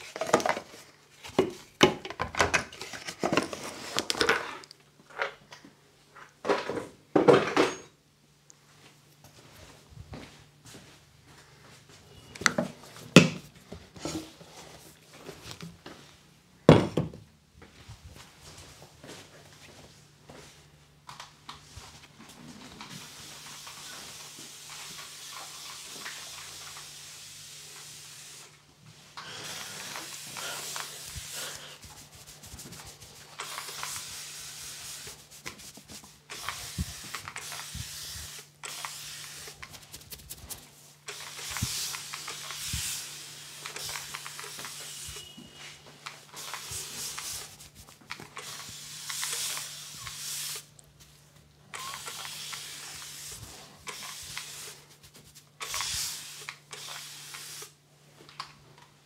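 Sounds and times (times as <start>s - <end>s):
spray bottle misting: 29.4s - 45.2s, 46.3s - 50.7s, 51.8s - 57.8s
hands rubbing dry hair: 29.8s - 43.0s, 46.4s - 48.1s, 54.3s - 55.6s.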